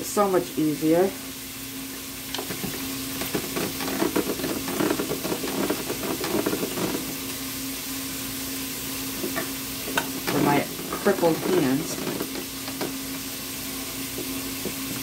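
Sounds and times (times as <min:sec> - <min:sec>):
drum grater grinding cheese: 0:02.4 - 0:07.4, 0:09.2 - 0:13.3.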